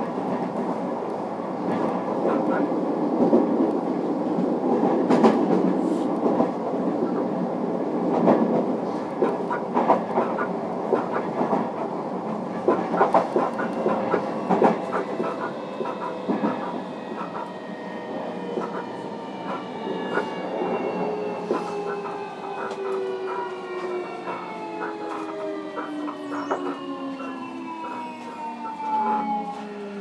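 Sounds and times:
train rumbling: 0.0s - 30.0s
train wheels clacking over rail joints: 8.1s - 17.6s, 18.4s - 28.9s.

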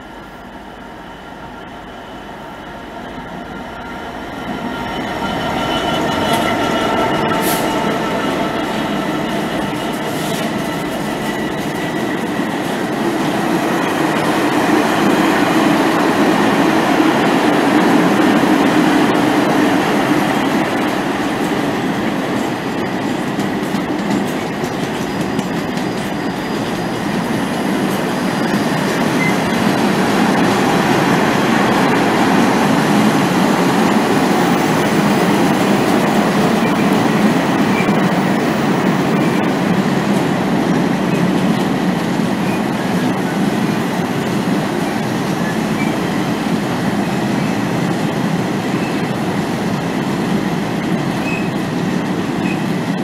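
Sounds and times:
freight train rolling: 0.0s - 53.0s
steel wheels clattering on rails: 20.7s - 53.0s.

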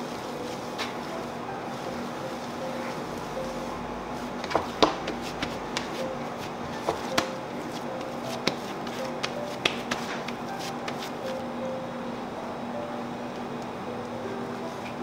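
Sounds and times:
faint background music: 0.0s - 15.0s
hands slapping dough on wood: 4.4s - 11.2s.

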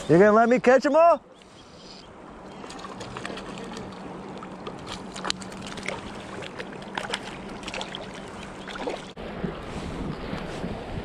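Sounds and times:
water lapping against boat hull: 2.4s - 10.8s.

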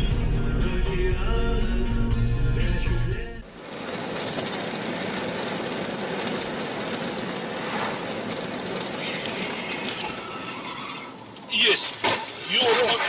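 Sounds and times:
car road and tyre noise: 3.4s - 13.0s.

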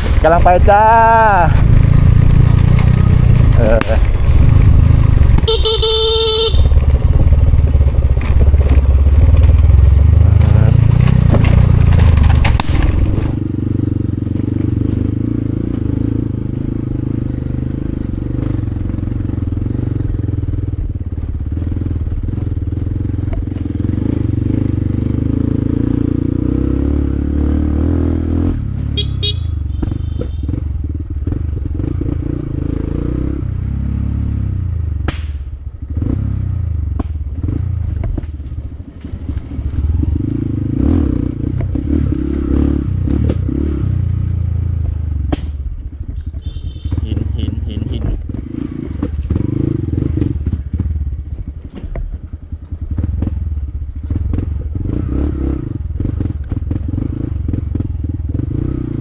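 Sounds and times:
vehicle engine running hard: 0.0s - 59.0s
vehicle horn honking: 5.4s - 6.8s, 29.0s - 30.6s, 46.2s - 47.7s.

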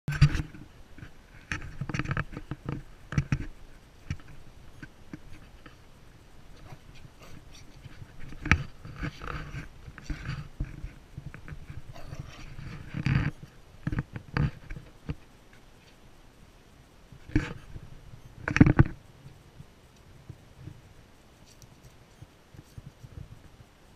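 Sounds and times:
puppy vocalizing: 11.9s - 12.6s.

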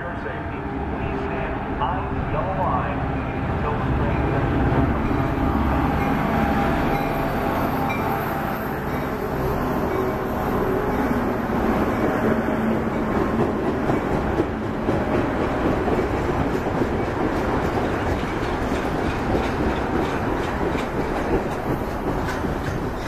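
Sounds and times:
train wheels rumbling on rails: 0.0s - 23.0s
train wheels clicking: 12.8s - 23.0s.

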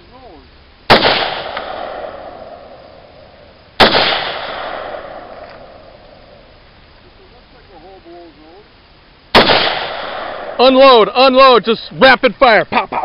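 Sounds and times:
rifle shots with echo: 0.9s - 3.2s, 3.8s - 6.4s, 9.3s - 10.7s.

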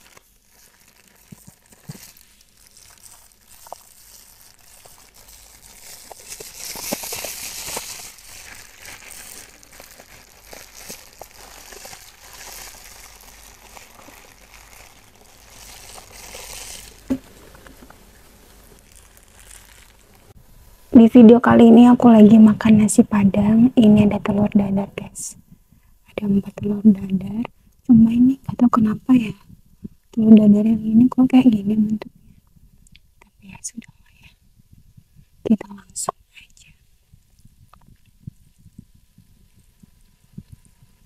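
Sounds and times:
plastic bags crinkling: 0.0s - 20.4s.

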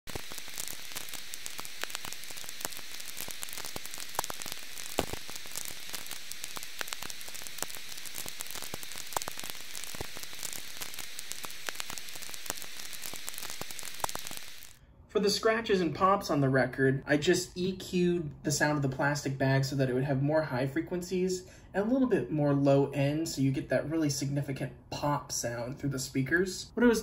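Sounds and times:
vinyl record crackle: 0.0s - 17.0s.

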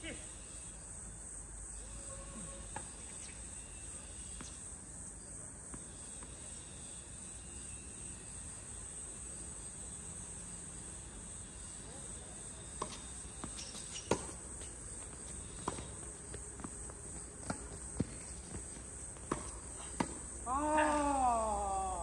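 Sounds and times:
high-pitched insect drone: 0.2s - 14.2s
tennis balls struck and bouncing: 12.6s - 21.0s.

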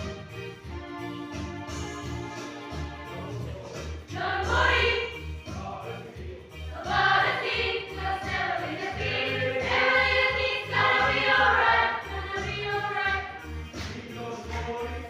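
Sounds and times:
choir singing: 4.1s - 15.0s.

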